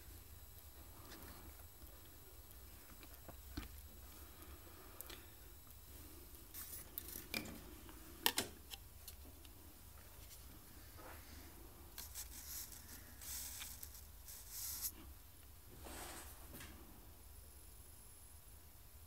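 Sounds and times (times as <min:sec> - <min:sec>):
soft rubbing: 0:10.0 - 0:15.1.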